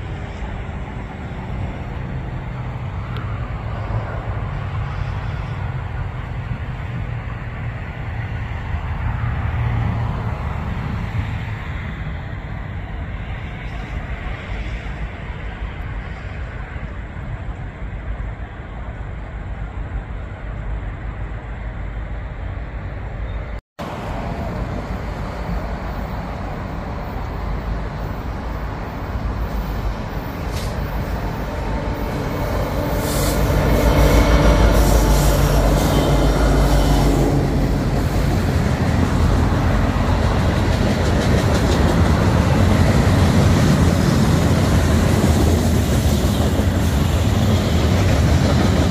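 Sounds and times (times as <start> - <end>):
diesel locomotive rumbling: 0.0 - 48.9
train wheels clicking on rails: 28.1 - 48.9.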